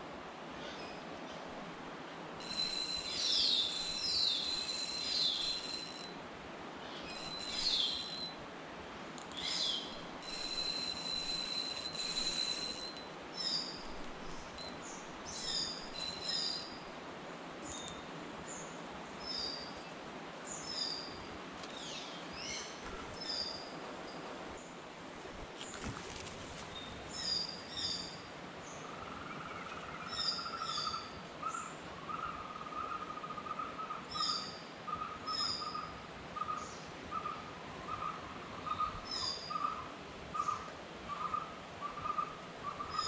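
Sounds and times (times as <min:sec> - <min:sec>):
background hiss: 0:00.0 - 0:43.0
birds chirping and whistling: 0:02.4 - 0:06.1, 0:07.0 - 0:08.4, 0:09.3 - 0:14.7, 0:15.3 - 0:16.8.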